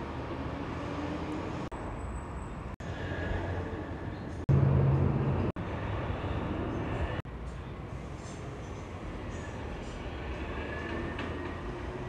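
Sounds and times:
trucks driving by: 0.0 - 12.0
heavy low engine hum: 2.8 - 10.0.

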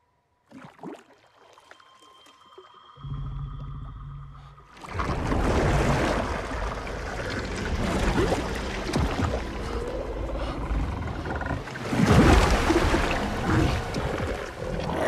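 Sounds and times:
water pouring and splashing: 4.8 - 10.5, 11.6 - 15.0.

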